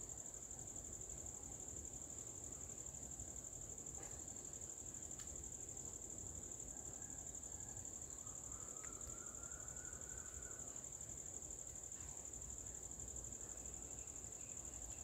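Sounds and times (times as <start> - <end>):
high-pitched insect trill: 6.5 - 15.0.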